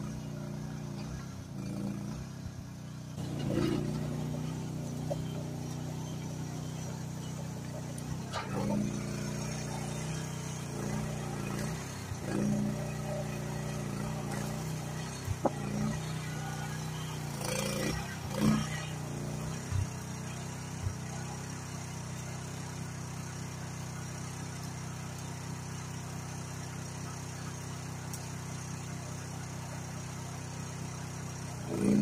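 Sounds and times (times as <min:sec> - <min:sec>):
excavator engine running: 0:00.0 - 0:32.0.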